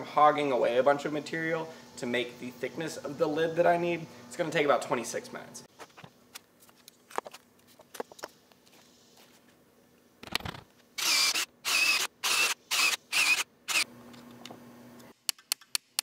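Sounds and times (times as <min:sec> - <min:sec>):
cordless drill motor whine: 0:11.0 - 0:13.9.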